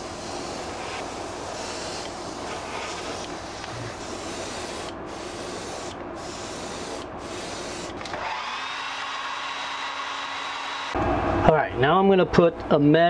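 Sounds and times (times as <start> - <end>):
airbrush spraying hiss: 0.0 - 8.0
hair dryer hum: 7.9 - 11.4.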